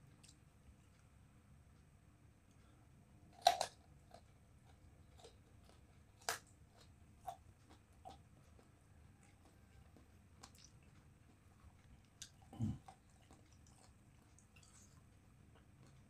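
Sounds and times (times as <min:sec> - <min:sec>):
chewing crunches: 0:03.3 - 0:16.0
crunchy bites into eggplant: 0:03.4 - 0:07.4.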